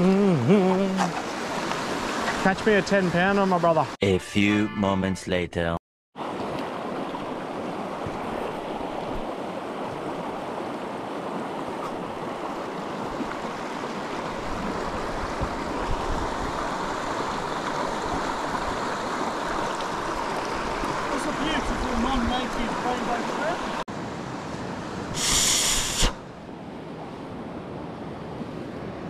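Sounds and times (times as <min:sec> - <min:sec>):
stream running over rocks: 0:00.3 - 0:03.9, 0:06.2 - 0:23.8.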